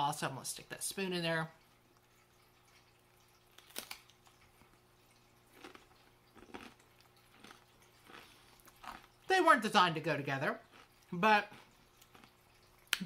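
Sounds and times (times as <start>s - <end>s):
person crunching crispbread: 3.3s - 9.3s, 10.6s - 13.0s.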